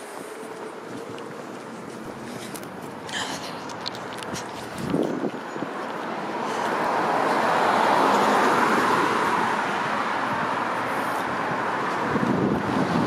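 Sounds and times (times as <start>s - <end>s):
car passing: 4.4s - 13.0s.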